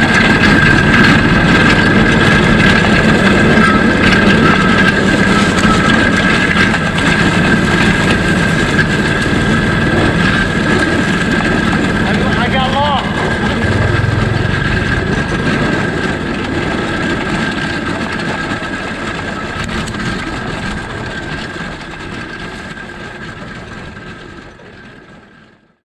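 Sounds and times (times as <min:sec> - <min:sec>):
go-kart engine running: 0:00.0 - 0:25.8
high whine: 0:08.3 - 0:23.6.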